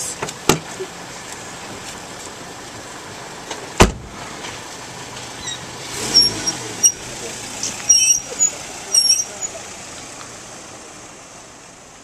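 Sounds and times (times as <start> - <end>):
car door slamming: 3.8 - 4.2.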